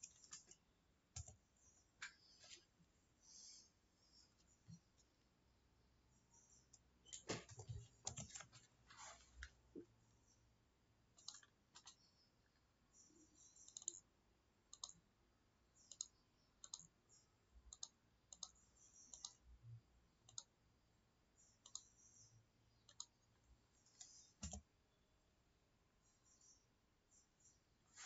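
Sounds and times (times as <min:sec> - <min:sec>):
computer mouse clicks: 0:11.1 - 0:12.1, 0:13.4 - 0:14.1, 0:14.7 - 0:15.0, 0:15.8 - 0:17.0, 0:17.7 - 0:19.4, 0:20.2 - 0:20.5, 0:21.4 - 0:23.3, 0:23.9 - 0:24.7.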